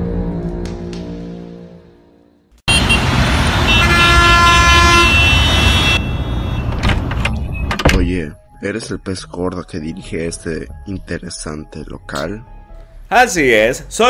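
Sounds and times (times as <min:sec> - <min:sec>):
music: 0:00.0 - 0:02.6, 0:07.3 - 0:14.0
car horns honking: 0:02.7 - 0:07.7
traffic rumble: 0:02.7 - 0:07.8.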